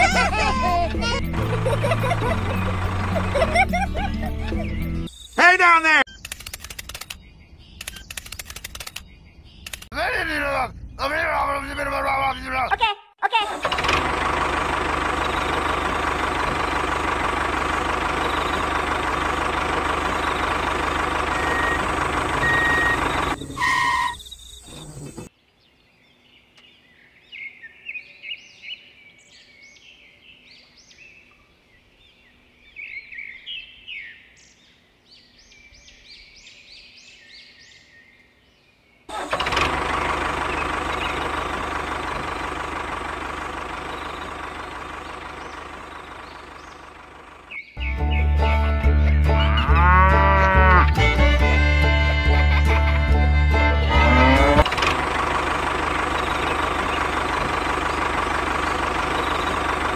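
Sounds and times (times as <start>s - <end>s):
motor engine running: 0.0s - 5.1s, 13.5s - 23.9s, 39.1s - 59.9s
birds chirping: 0.0s - 12.9s, 14.3s - 50.9s, 53.6s - 59.9s.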